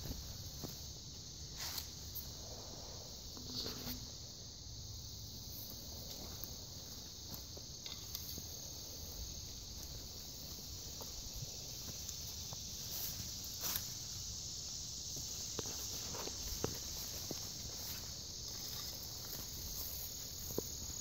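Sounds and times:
insects trilling: 0:00.0 - 0:21.0
footsteps through undergrowth: 0:06.1 - 0:14.3, 0:15.0 - 0:21.0.

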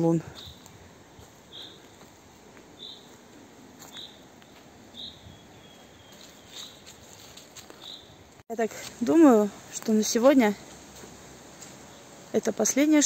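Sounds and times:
bird chirping: 0:00.3 - 0:00.8, 0:01.4 - 0:02.0, 0:02.7 - 0:03.2, 0:03.8 - 0:08.3
faint clicks and rustles: 0:06.1 - 0:09.0.

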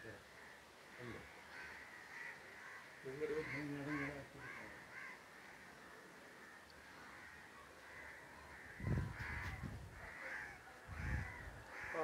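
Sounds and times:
crows cawing: 0:00.0 - 0:12.0.

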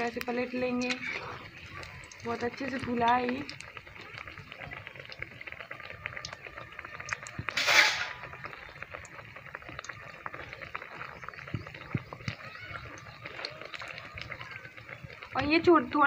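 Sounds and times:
oil crackling while frying: 0:00.0 - 0:16.0
loud hiss of frying batter: 0:05.6 - 0:16.0.

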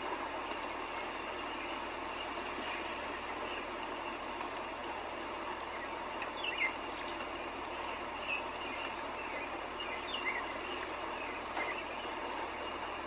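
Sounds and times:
steady background hiss: 0:00.0 - 0:13.0
bird chirps: 0:05.6 - 0:13.0.

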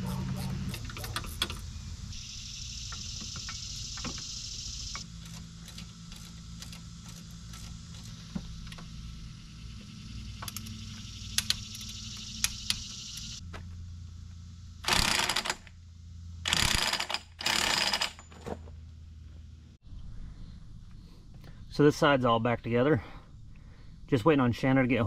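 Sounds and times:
high buzzing hiss: 0:00.0 - 0:15.3.

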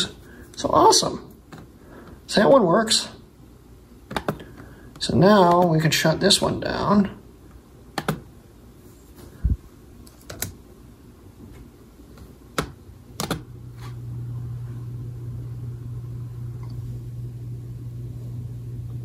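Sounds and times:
steady low hum: 0:00.0 - 0:19.0
laptop trackpad and key clicks: 0:08.0 - 0:08.2, 0:10.1 - 0:10.6, 0:12.6 - 0:13.4.

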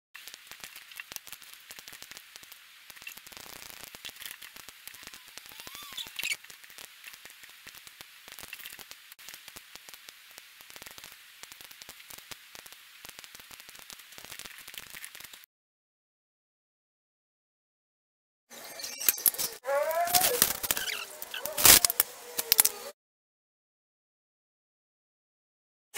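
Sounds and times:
crackling static: 0:00.2 - 0:15.5, 0:18.5 - 0:23.0.

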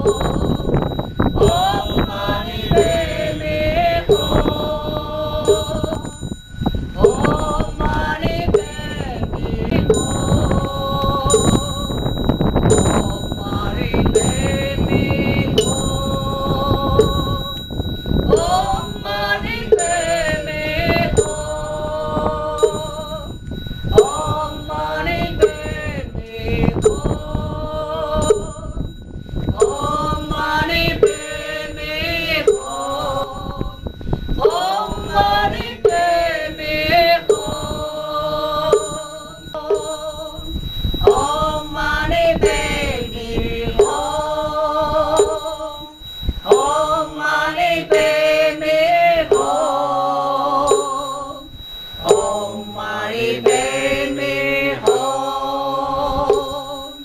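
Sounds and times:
bell-like chimes: 0:00.0 - 0:57.0
sung mantra chant: 0:00.0 - 0:57.0
low beat: 0:52.0 - 0:55.3.

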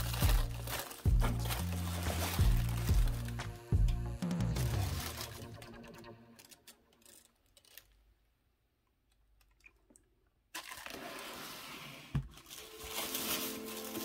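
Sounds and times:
tissue paper rustling: 0:00.0 - 0:03.5, 0:04.6 - 0:05.6, 0:10.8 - 0:14.0.

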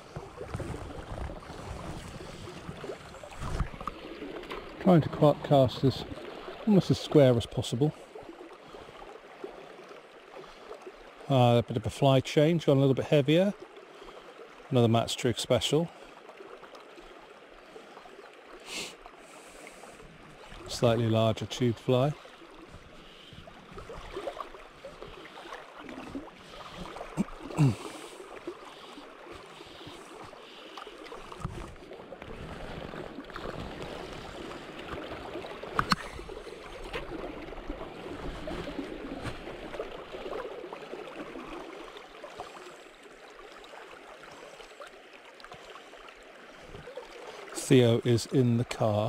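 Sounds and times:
river water lapping: 0:00.0 - 0:49.0.

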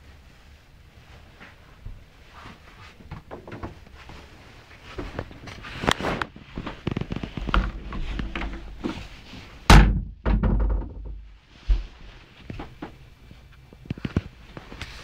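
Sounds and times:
door heavy thunk: 0:09.7 - 0:11.2
door small thuds: 0:09.7 - 0:11.3.

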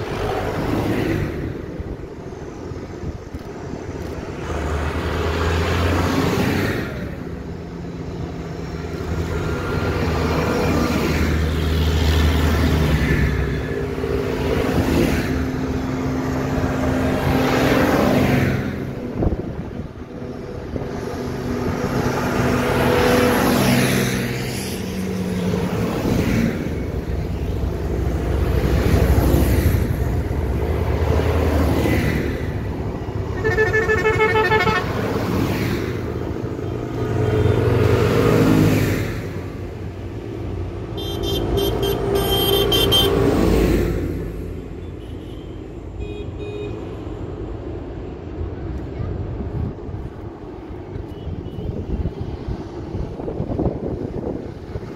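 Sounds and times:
tractors driving past: 0:00.0 - 0:54.9
horn tooting short blasts: 0:33.3 - 0:35.0, 0:41.0 - 0:43.2.

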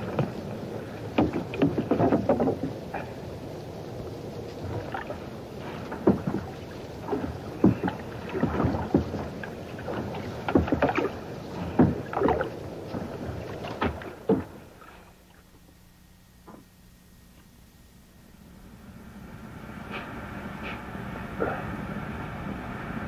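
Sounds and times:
water splashing: 0:00.0 - 0:15.6.

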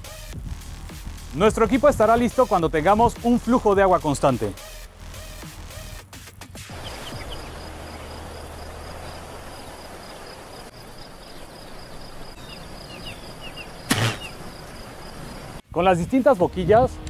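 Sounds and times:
crickets chirping: 0:06.7 - 0:15.6
field ambience hiss: 0:06.7 - 0:16.3.

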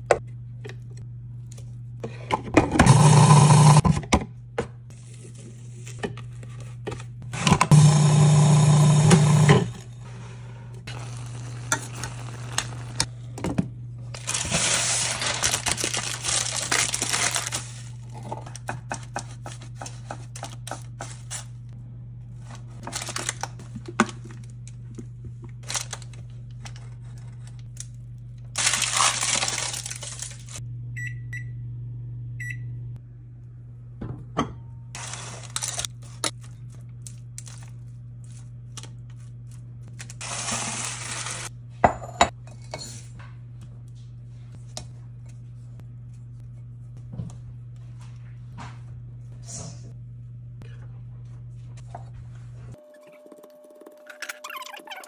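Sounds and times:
parchment paper crinkling: 0:14.1 - 0:18.2, 0:22.3 - 0:30.6, 0:35.0 - 0:41.4.

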